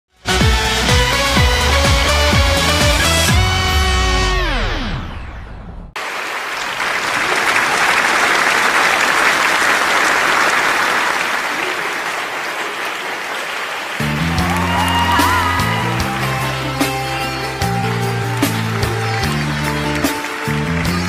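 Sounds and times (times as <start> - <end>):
audience applauding: 6.0 - 21.0.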